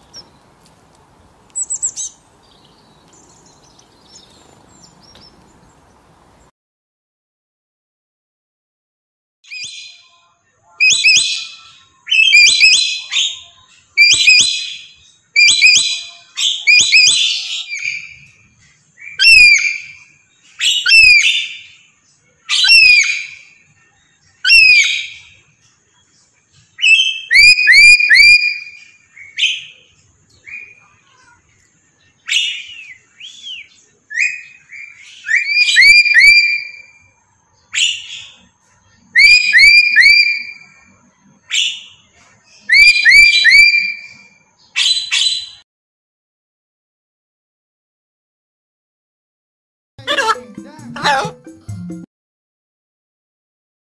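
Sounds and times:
parrots calling: 0:19.0 - 0:20.0, 0:20.6 - 0:21.8, 0:22.5 - 0:23.6, 0:24.4 - 0:25.4, 0:26.8 - 0:31.3, 0:32.2 - 0:37.0, 0:37.7 - 0:38.5, 0:39.1 - 0:40.8, 0:42.7 - 0:44.2, 0:50.0 - 0:51.4.

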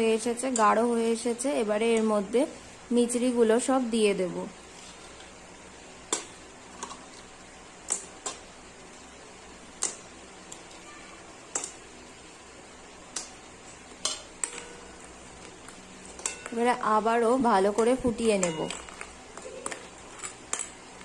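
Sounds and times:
faint steady hiss: 0:00.0 - 0:21.0
sugar lumps clicking on metal pot: 0:06.1 - 0:07.0, 0:07.8 - 0:08.5, 0:09.8 - 0:10.8, 0:13.1 - 0:16.6, 0:17.7 - 0:21.0.

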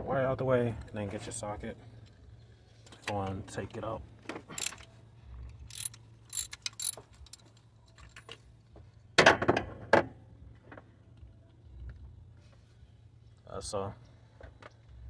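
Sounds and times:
metal clatter: 0:04.5 - 0:04.8, 0:05.6 - 0:08.4
socket wrench ratchet clicks: 0:04.6 - 0:04.8, 0:05.6 - 0:07.4.

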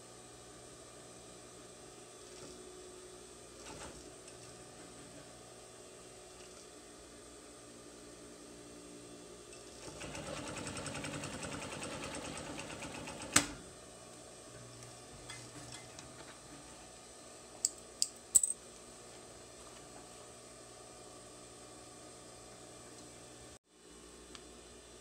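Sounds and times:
sewing machine stitching: 0:03.6 - 0:04.1, 0:09.6 - 0:13.6.

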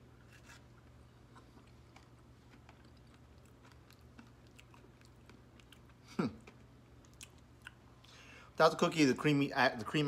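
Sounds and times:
quiet chewing and mouth clicks: 0:01.2 - 0:08.2.

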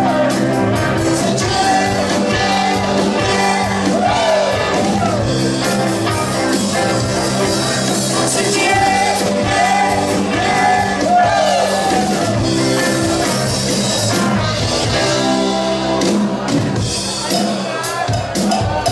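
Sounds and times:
person singing: 0:00.0 - 0:05.2, 0:07.8 - 0:13.0
electric guitars: 0:00.0 - 0:17.6
drums: 0:00.0 - 0:18.9
keyboard: 0:00.0 - 0:18.9.

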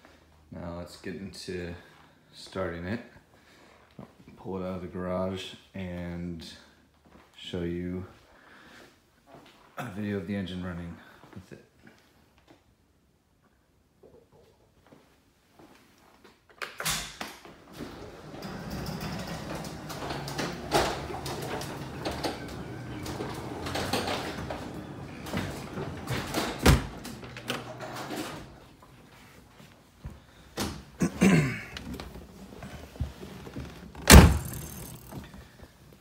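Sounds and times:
thumps and rustling: 0:31.8 - 0:35.4
car door slamming: 0:34.0 - 0:35.0.

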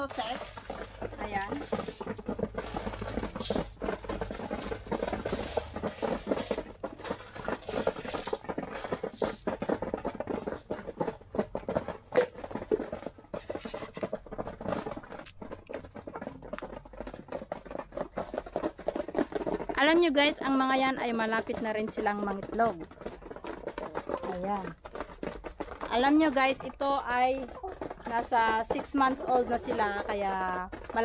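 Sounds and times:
chickens pecking at feed: 0:00.0 - 0:31.0.

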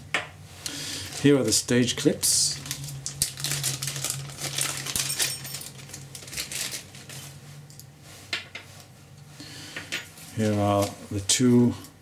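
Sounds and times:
low steady hum: 0:00.0 - 0:12.0
plastic bag crinkling: 0:01.0 - 0:07.4.

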